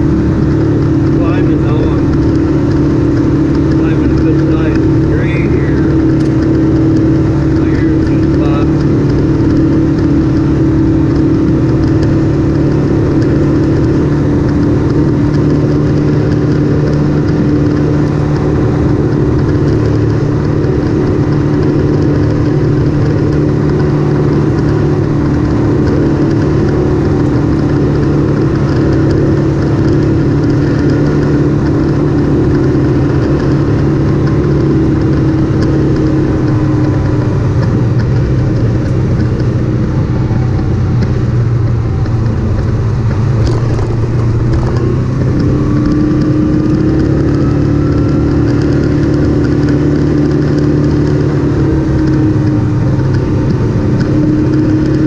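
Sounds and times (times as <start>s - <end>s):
constant rushing noise: 0.0s - 55.0s
vehicle engine running steadily: 0.0s - 55.0s.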